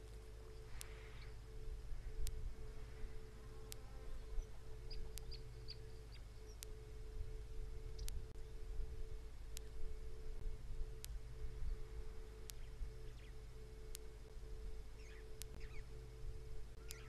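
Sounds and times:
faint steady tones: 0:00.0 - 0:17.0
steady low hum: 0:00.0 - 0:17.0
sharp tick: 0:02.2 - 0:02.4, 0:04.9 - 0:06.8, 0:09.5 - 0:09.8, 0:12.4 - 0:13.3, 0:13.9 - 0:14.4, 0:15.0 - 0:15.9, 0:16.8 - 0:17.0.

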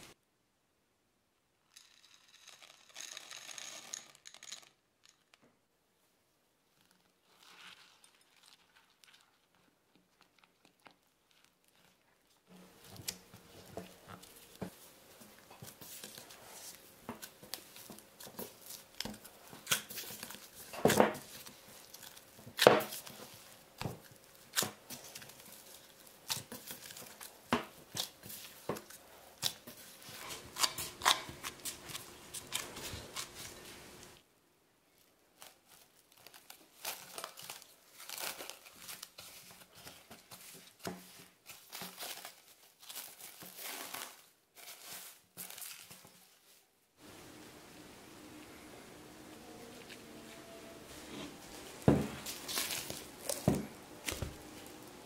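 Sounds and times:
plastic gloves crinkling: 0:06.6 - 0:34.2, 0:34.9 - 0:55.0
cling film rustling: 0:49.7 - 0:55.0.

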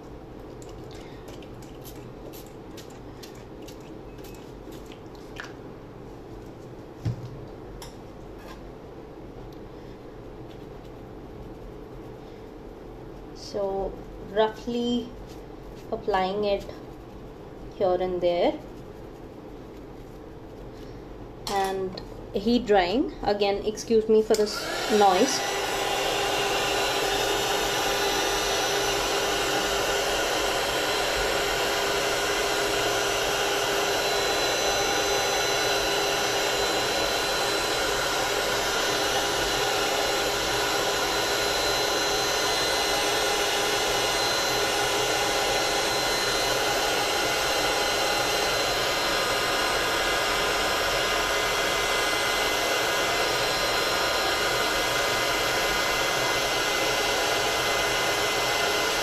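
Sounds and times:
fan whine: 0:00.0 - 0:59.0
heat tool blowing: 0:24.3 - 0:59.0.

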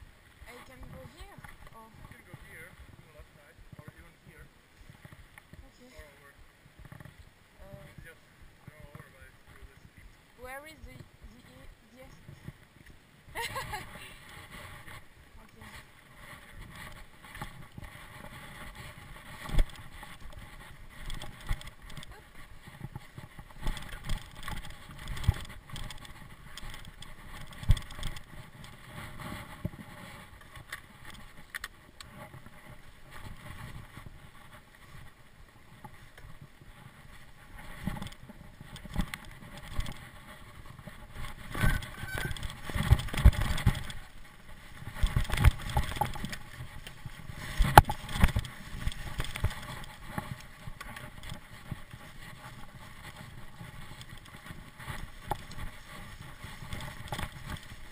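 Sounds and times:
bike tyres and frame rattling: 0:06.6 - 0:08.0, 0:11.5 - 0:57.9
bike knocks and clunks over bumps: 0:37.6 - 0:57.9.

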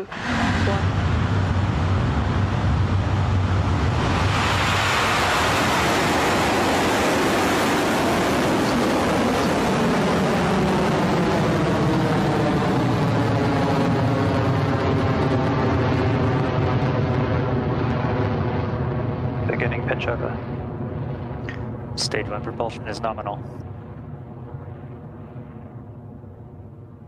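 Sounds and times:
rocket engines roaring: 0:00.0 - 0:27.0.

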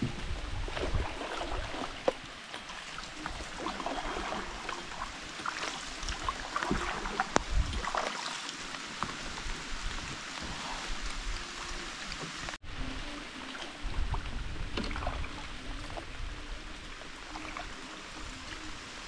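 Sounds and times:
rain drips and splashes: 0:00.0 - 0:19.0
water lapping around boat: 0:00.0 - 0:19.0.

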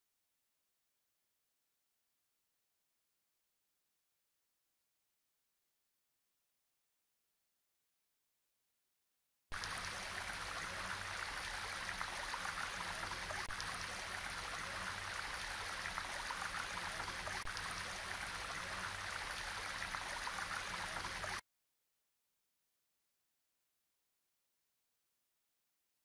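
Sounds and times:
stream water rushing: 0:09.6 - 0:21.4.

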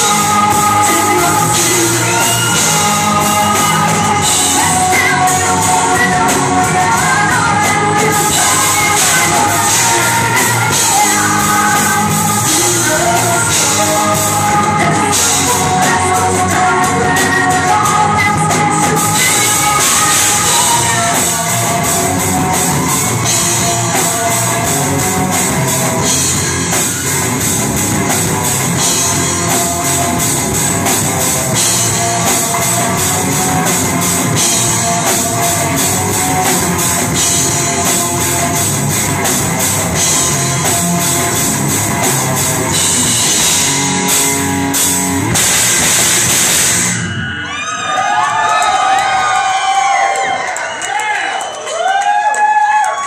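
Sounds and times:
live metal band playing: 0:00.0 - 0:51.2
drum hits: 0:18.9 - 0:47.1.

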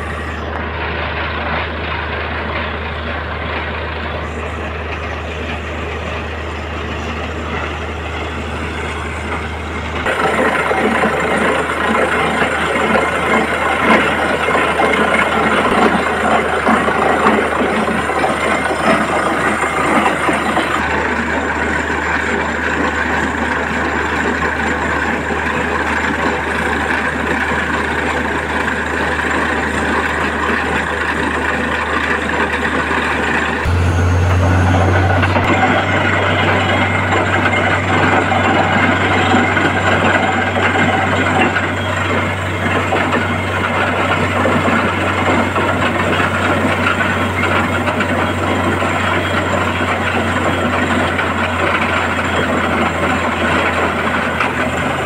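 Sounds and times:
drilling rig engine drone: 0:00.0 - 0:28.7, 0:29.3 - 0:55.0
deeper hum: 0:33.6 - 0:40.5.

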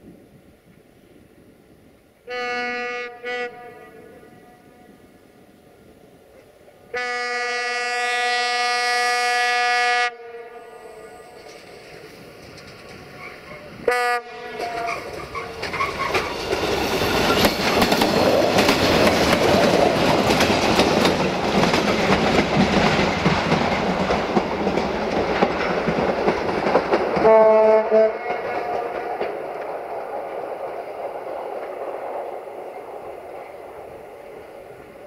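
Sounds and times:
rail machine engine noise: 0:00.0 - 0:35.0
horn blast: 0:02.3 - 0:04.8, 0:13.9 - 0:15.6, 0:27.2 - 0:28.9
wheel clatter on rails: 0:11.4 - 0:13.8, 0:14.6 - 0:27.3.

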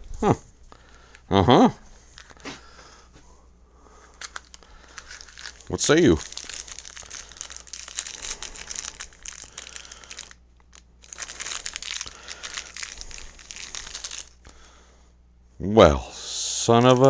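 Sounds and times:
paper packaging crinkling: 0:02.0 - 0:02.6, 0:04.1 - 0:14.5, 0:16.5 - 0:17.0.

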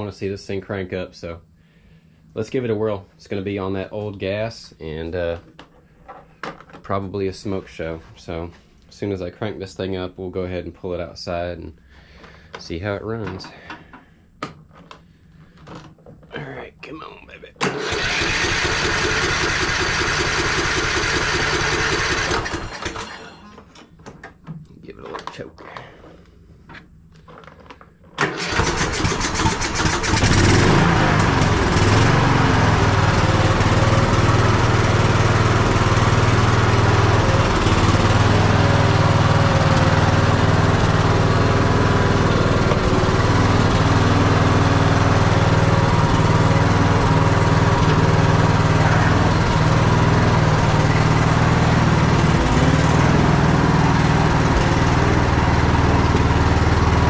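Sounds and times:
engine cranking and starting: 0:17.6 - 0:24.0, 0:27.3 - 0:57.0
engine running steadily: 0:28.3 - 0:57.0.

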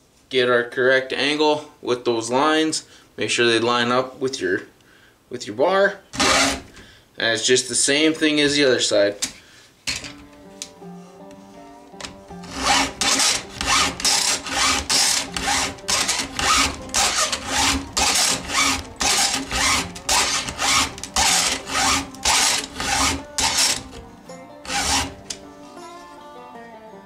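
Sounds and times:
files rasping on chainsaw chain: 0:06.2 - 0:06.7, 0:12.4 - 0:24.0, 0:24.7 - 0:25.4.

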